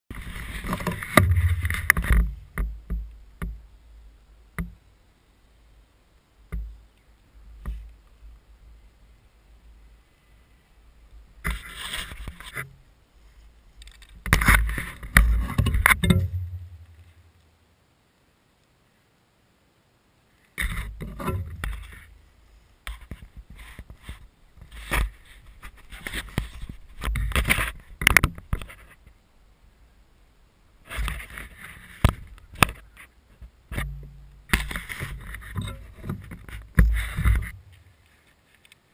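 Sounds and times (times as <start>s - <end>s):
handling bumps and scrapes: 0.1s - 3.6s, 11.4s - 17.2s, 20.6s - 22.2s, 22.9s - 29.1s, 30.8s - 38.8s.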